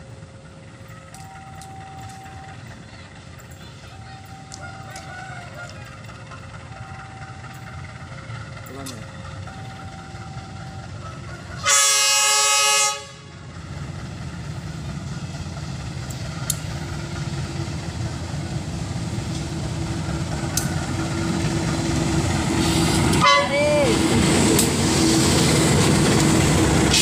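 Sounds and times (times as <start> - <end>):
train engine and wheels rumbling: 0.0 - 27.0
locomotive horn blast: 11.5 - 13.5, 23.1 - 24.0.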